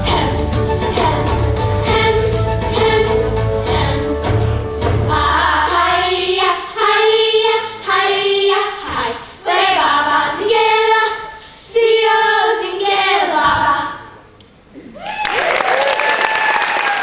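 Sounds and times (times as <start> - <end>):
low backing music: 0.0 - 6.7
chorus singing: 0.0 - 14.3.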